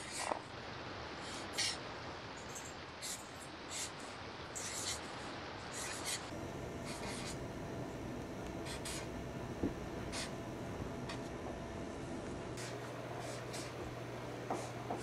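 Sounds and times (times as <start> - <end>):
steady low hiss: 0.0 - 15.0
marker scratching on paper: 4.6 - 7.4, 8.6 - 9.1, 10.1 - 10.4, 12.6 - 13.8, 14.5 - 15.0.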